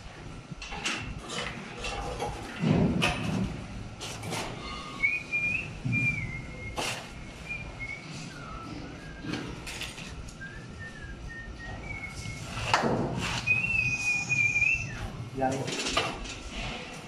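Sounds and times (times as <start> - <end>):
thin wavering whistle: 4.6 - 15.2.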